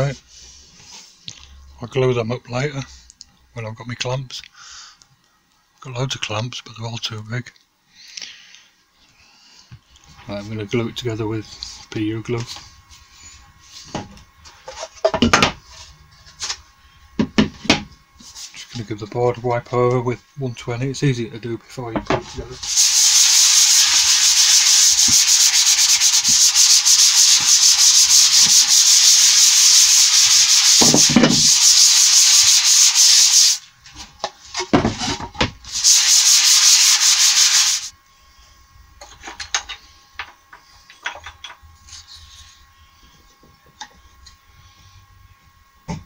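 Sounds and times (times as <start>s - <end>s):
sandpaper rubbing on wood panel: 22.6s - 33.6s, 35.7s - 37.9s.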